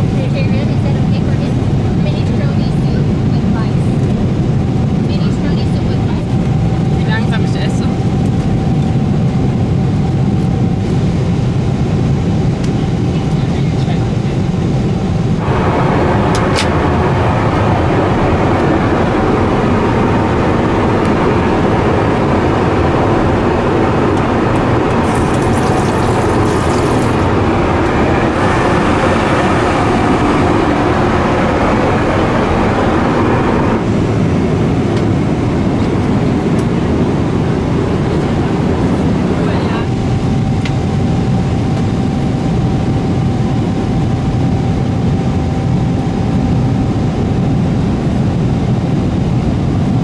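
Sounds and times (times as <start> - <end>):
airplane cabin engine noise: 0.0 - 50.0
tap water running: 25.0 - 27.3.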